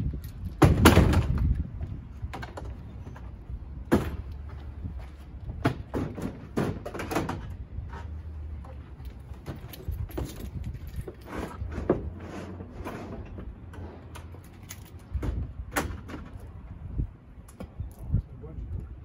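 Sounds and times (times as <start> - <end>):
gear clattering scrape: 9.8 - 15.0.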